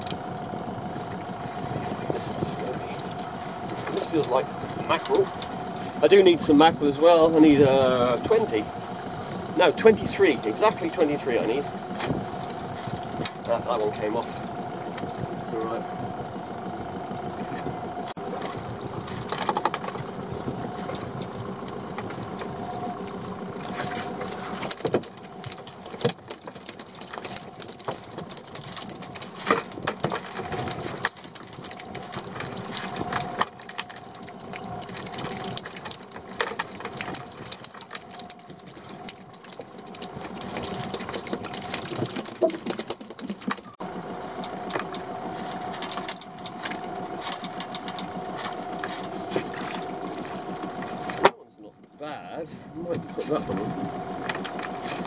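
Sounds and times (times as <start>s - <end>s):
boat engine idling: 0.0s - 55.0s
fishing tackle clicks and knocks: 18.4s - 21.3s, 23.6s - 43.8s.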